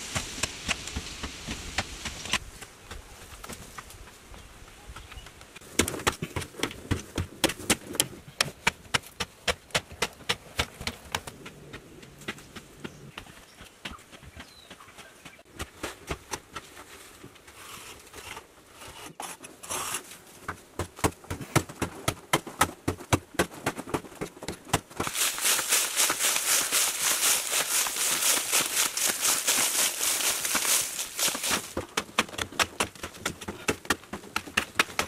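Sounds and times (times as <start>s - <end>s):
hand tool striking earth: 21.0s - 35.0s
digging in gravelly soil: 24.8s - 35.0s.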